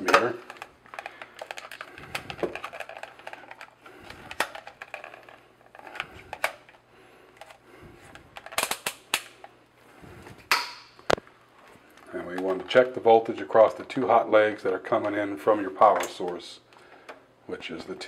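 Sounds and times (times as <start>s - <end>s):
plastic clicks and rattles of meter: 0.0s - 6.8s.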